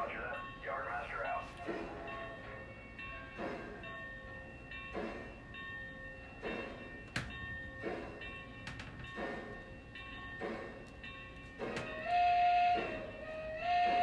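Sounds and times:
toy train steam chuffs: 11.6 - 14.0.

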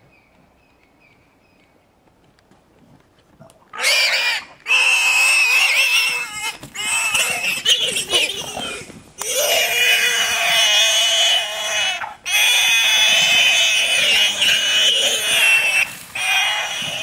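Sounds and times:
warthog squealing: 3.8 - 17.0.

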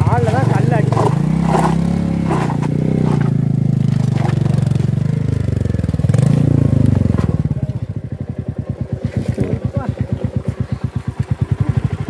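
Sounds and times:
rear wheel spinning on rocks: 0.0 - 5.0
motorcycle engine revving: 0.0 - 12.0.

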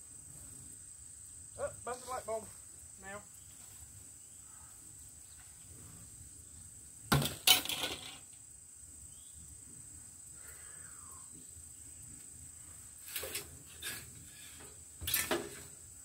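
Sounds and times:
insects droning: 0.0 - 16.0
sharp clatter: 7.1 - 8.3.

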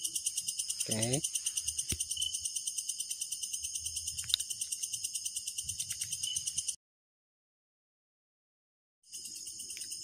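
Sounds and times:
crickets chirping: 0.0 - 6.8, 9.0 - 10.0.

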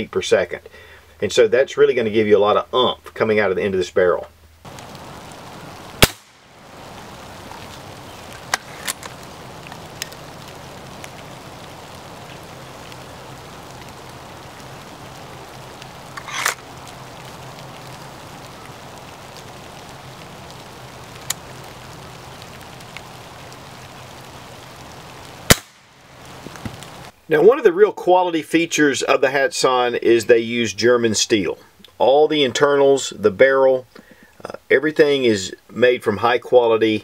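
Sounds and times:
faint hiss: 0.0 - 37.0
rifle clicks: 6.0 - 6.4, 16.2 - 16.6
air rifle shot crack: 6.0 - 6.5, 25.5 - 26.0.

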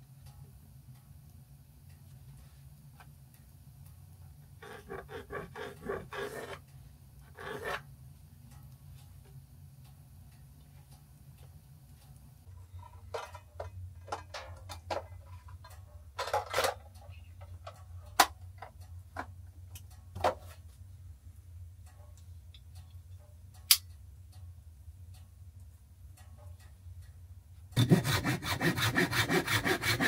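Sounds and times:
small parts clicking and knocking: 12.6 - 20.7, 21.8 - 24.4.

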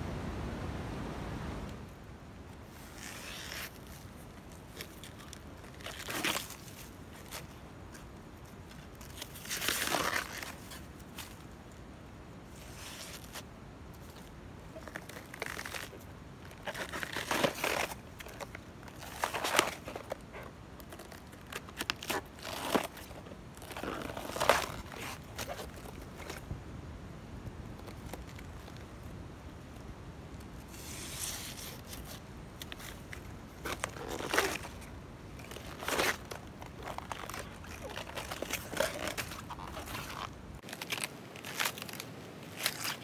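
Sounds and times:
banana stem sheaths tearing: 14.7 - 26.4, 30.8 - 43.0.

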